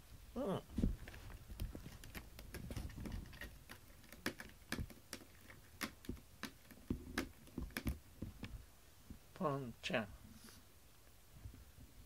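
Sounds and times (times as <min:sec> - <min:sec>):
cat claws scratching carpet: 0:00.8 - 0:08.6.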